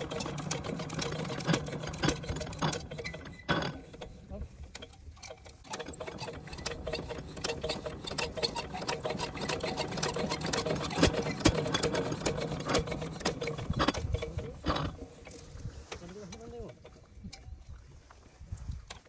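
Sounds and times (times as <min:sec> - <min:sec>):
engine cranking clatter: 0:00.0 - 0:17.0.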